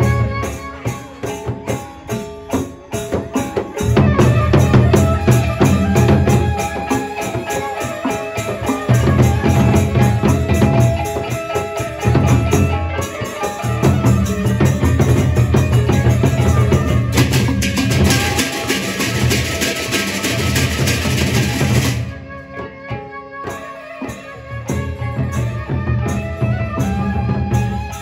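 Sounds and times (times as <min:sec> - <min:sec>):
cymbals clashing: 0:00.0 - 0:22.2
barrel drums beating: 0:01.5 - 0:22.7.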